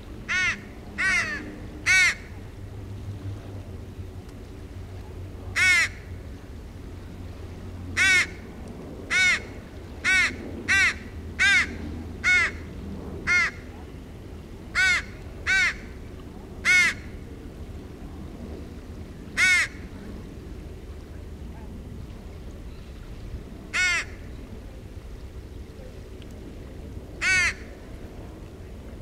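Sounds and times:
young crow cawing: 0:00.3 - 0:02.3, 0:05.6 - 0:06.1, 0:08.0 - 0:08.4, 0:09.1 - 0:12.7, 0:13.3 - 0:13.7, 0:14.8 - 0:15.9, 0:16.6 - 0:17.1, 0:19.4 - 0:19.8, 0:23.7 - 0:24.2, 0:27.2 - 0:27.7.

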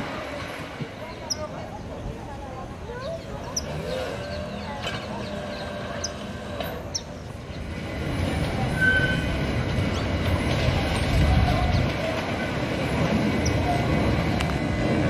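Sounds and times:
locomotive wheels and motors rumbling: 0:00.0 - 0:15.0
short high wheel squeal: 0:08.7 - 0:09.5.

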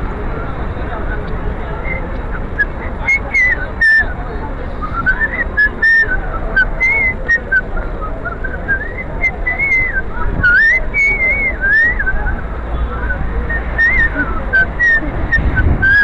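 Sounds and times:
street and crowd noise: 0:00.0 - 0:16.0
person whistling a tune: 0:04.8 - 0:12.4, 0:13.0 - 0:16.0.

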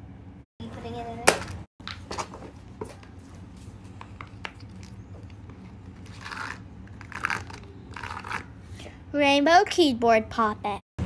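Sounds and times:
rubbing and scraping of toys: 0:01.4 - 0:09.0.

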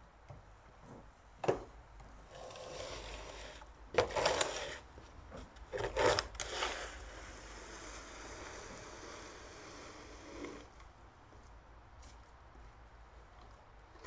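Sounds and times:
plastic shovel scraping ground: 0:02.3 - 0:04.9, 0:05.7 - 0:10.7.

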